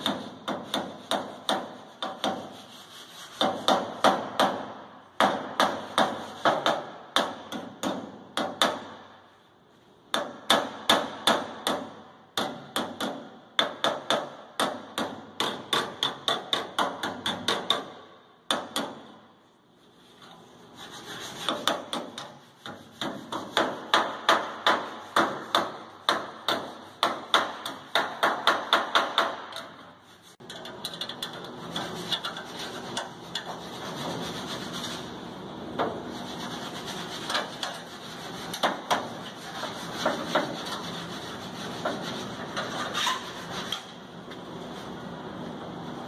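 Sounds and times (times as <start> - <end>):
hammer striking sheet metal: 0.0 - 2.6, 3.3 - 9.2, 10.1 - 19.2, 21.4 - 30.6, 37.2 - 40.9
metal scraping on panel: 20.0 - 23.5, 29.9 - 44.0.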